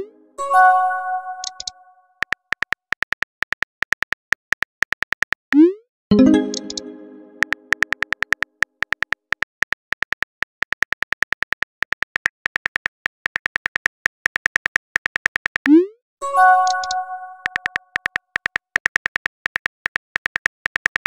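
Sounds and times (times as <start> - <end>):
bright multi-tone chime: 0.4 - 1.6, 6.1 - 7.7
keyboard tap clicks: 6.2 - 9.4, 16.6 - 21.0.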